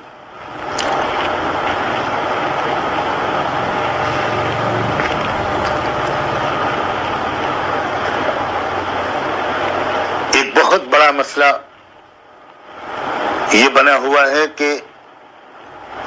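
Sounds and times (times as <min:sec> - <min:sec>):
machine humming with hiss: 0:00.0 - 0:10.7, 0:15.0 - 0:16.0.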